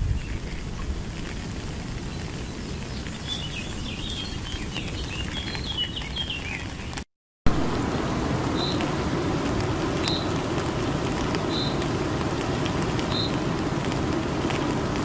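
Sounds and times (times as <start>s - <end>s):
steady rain hiss: 0.0s - 15.0s.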